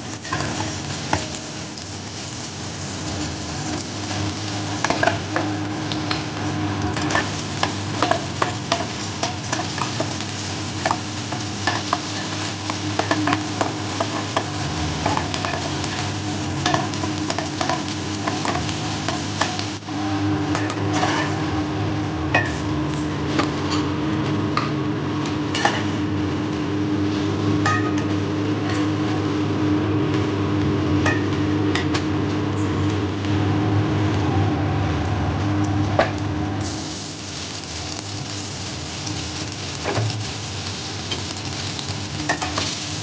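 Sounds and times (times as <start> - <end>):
eggs sizzling in hot oil: 0.0 - 32.3, 36.6 - 43.0
spatula scraping and tapping pan: 3.7 - 6.3, 10.8 - 16.0, 16.6 - 19.6, 20.5 - 21.4, 25.5 - 26.0.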